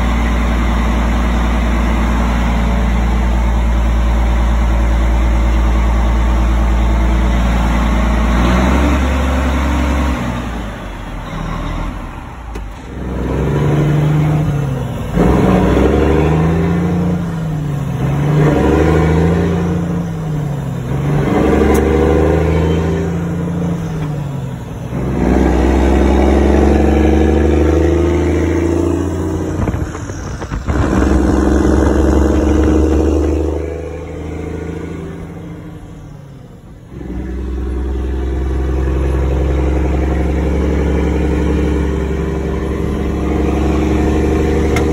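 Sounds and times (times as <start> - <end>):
diesel truck engine pulling: 0.0 - 44.9.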